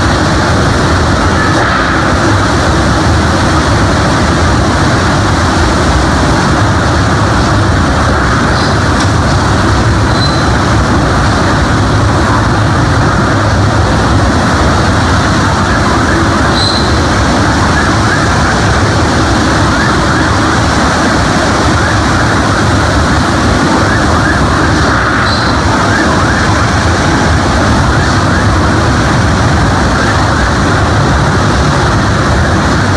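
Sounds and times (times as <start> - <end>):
high wind whistles: 0.0 - 32.9
strong wind and rain: 0.0 - 32.9.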